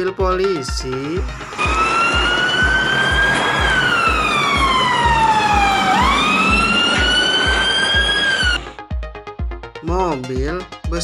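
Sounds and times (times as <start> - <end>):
police siren wailing: 1.2 - 8.8.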